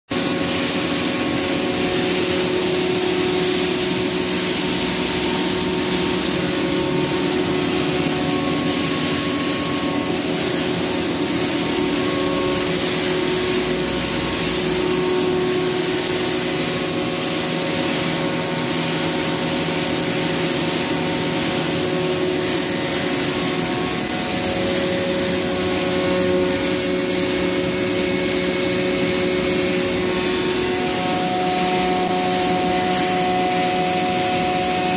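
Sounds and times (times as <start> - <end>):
machine hum: 0.1 - 34.9
stone router grinding: 29.8 - 34.9.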